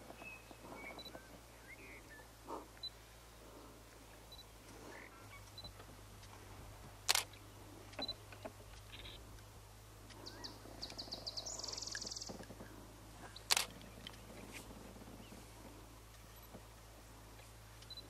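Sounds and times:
faint low hum: 0.0 - 18.0
sharp clicks: 7.1 - 10.2, 13.4 - 14.2.

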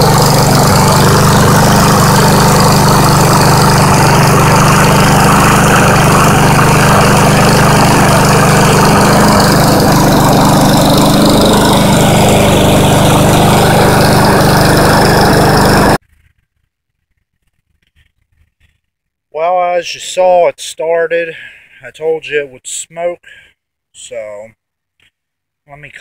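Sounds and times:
lawn mower engine running: 0.0 - 16.0.

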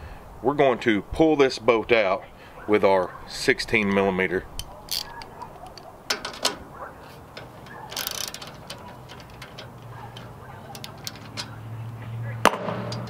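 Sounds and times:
ratchet wrench clicking: 4.6 - 6.6, 7.4 - 11.6.

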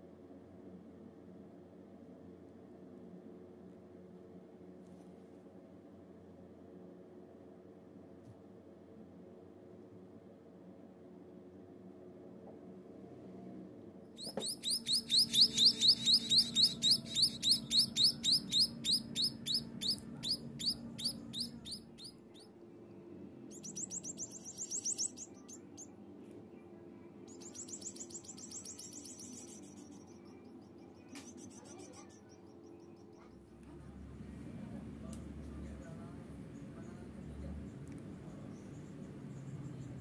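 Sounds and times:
nestlings cheeping: 14.2 - 22.5, 23.4 - 25.9, 27.2 - 33.5.

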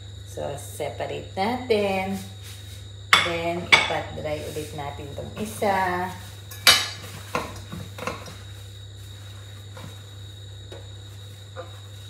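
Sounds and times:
dishes clinking and knocking: 6.5 - 8.4.

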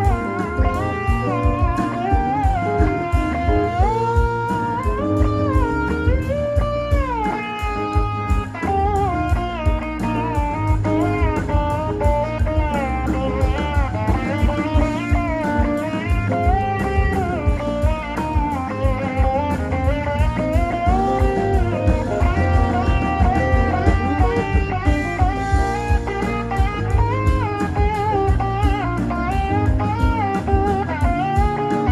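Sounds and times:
bass guitar: 0.0 - 31.9
electric guitar sliding notes: 0.0 - 31.9
steady drum beat: 0.0 - 31.9.

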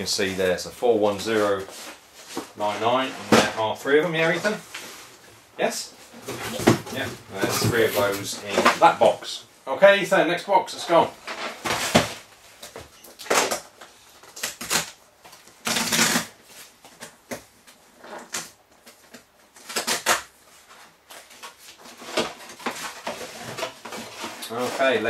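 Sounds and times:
cardboard tearing: 14.3 - 15.0, 15.6 - 16.4, 19.6 - 20.3.

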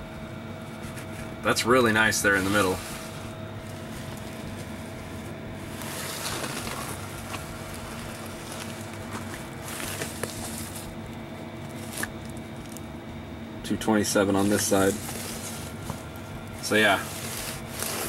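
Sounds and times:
mechanical hum: 0.0 - 18.0
faint rustling: 2.1 - 12.8, 14.4 - 18.0.

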